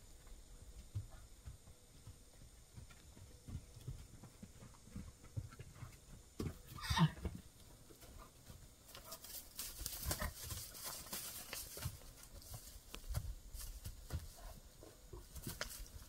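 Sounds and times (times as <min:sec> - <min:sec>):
hoof thuds and scuffing on dirt: 0:00.0 - 0:16.0.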